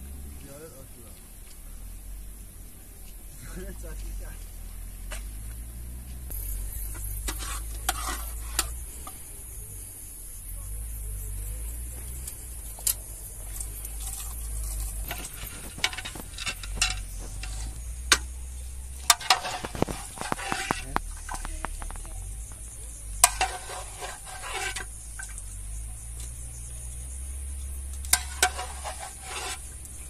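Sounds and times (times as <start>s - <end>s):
metal ladle stirring in pot: 7.0s - 8.8s, 12.8s - 18.3s, 18.9s - 22.1s, 23.1s - 25.4s, 28.0s - 29.8s.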